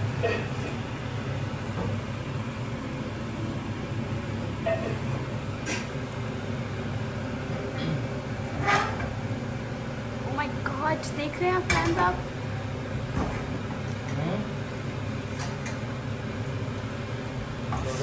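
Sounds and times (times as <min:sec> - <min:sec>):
low steady hum: 0:00.0 - 0:18.0
omelette cooking in frying pan: 0:00.0 - 0:18.0.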